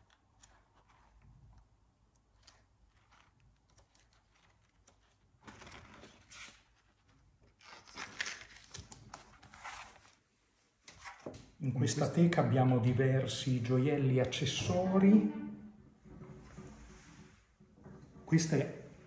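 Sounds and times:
paper pages rustling: 0:00.0 - 0:10.2, 0:10.8 - 0:11.5.

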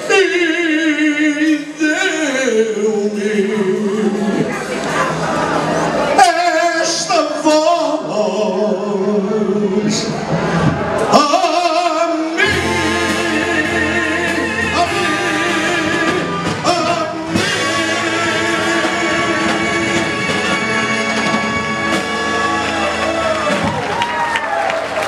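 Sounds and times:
man singing with vibrato: 0:00.0 - 0:04.6, 0:06.0 - 0:23.7.

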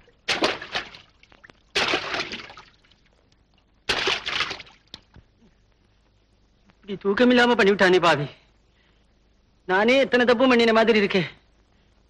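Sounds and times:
water pouring splashes: 0:00.0 - 0:03.1, 0:03.9 - 0:05.0.

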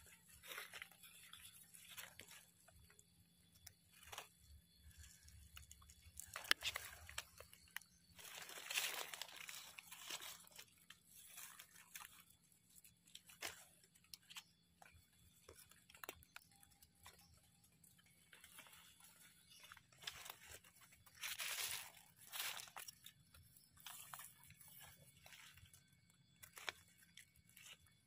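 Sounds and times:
rustling of dry leaf litter: 0:00.0 - 0:28.0
small clicks and snaps: 0:05.0 - 0:08.9, 0:13.1 - 0:17.4.

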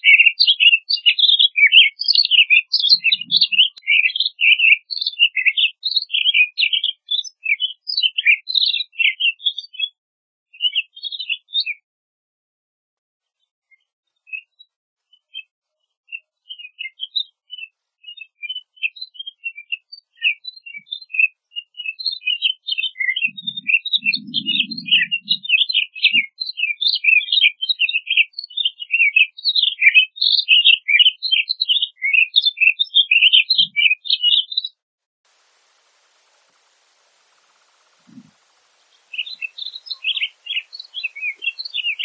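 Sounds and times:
birds chirping: 0:00.0 - 0:09.9, 0:16.5 - 0:28.2, 0:29.8 - 0:34.8, 0:35.4 - 0:42.0.

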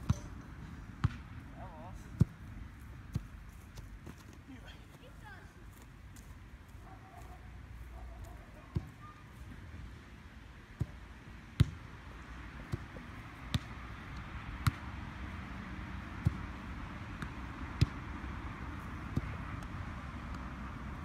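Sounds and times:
steady outdoor hiss: 0:00.0 - 0:21.0
football thuds: 0:11.6 - 0:11.8, 0:12.6 - 0:14.8.

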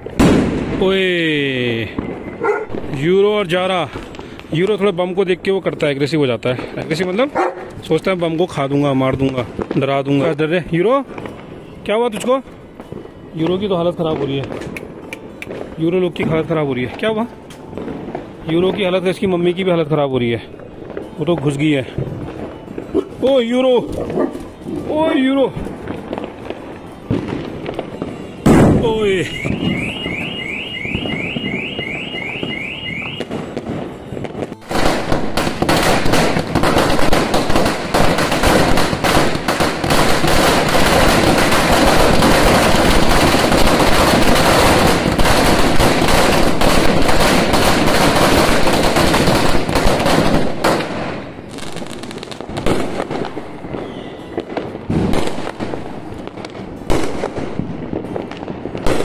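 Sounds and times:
firecrackers crackling and banging: 0:00.0 - 0:59.0
car alarm chirping: 0:29.0 - 0:33.3.

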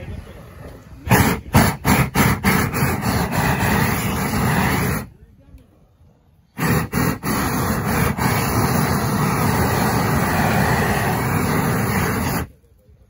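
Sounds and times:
flame torch roaring: 0:00.0 - 0:05.1, 0:06.6 - 0:12.5.

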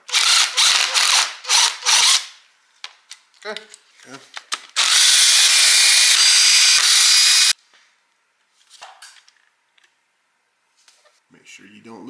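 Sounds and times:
cordless drill spinning: 0:00.1 - 0:02.3, 0:04.8 - 0:07.6.

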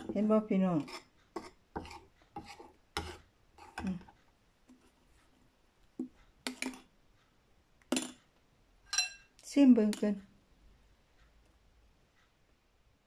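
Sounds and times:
spoon clinking in ceramic bowl: 0:08.9 - 0:09.3.

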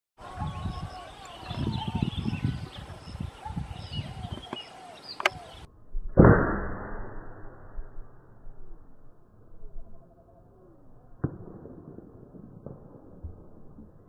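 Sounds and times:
air rifle shot: 0:06.2 - 0:07.8
faint bird chirps: 0:09.5 - 0:11.2.

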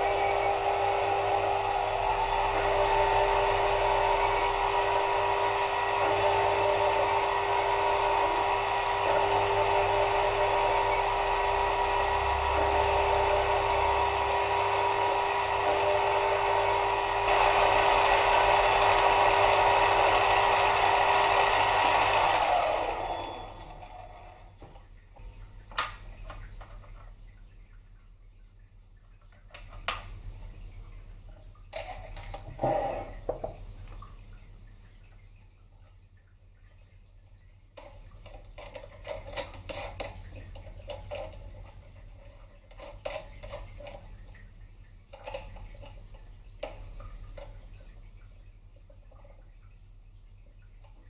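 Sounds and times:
lathe motor whine: 0:00.0 - 0:24.5.

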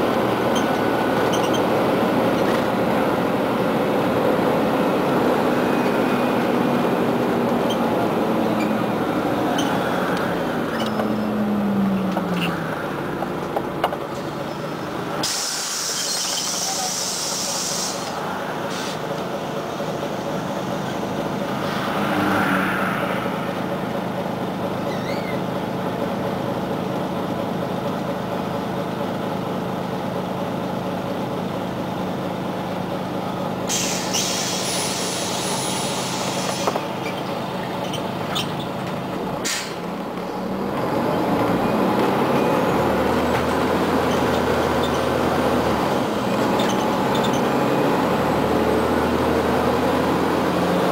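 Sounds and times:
bus diesel engine: 0:00.0 - 0:50.9
road noise: 0:00.0 - 0:50.9
short air hisses: 0:15.2 - 0:19.0, 0:33.7 - 0:36.8.

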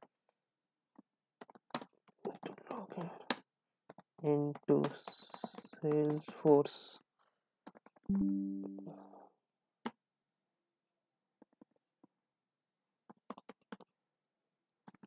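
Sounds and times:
brief steady tone: 0:08.1 - 0:09.2.

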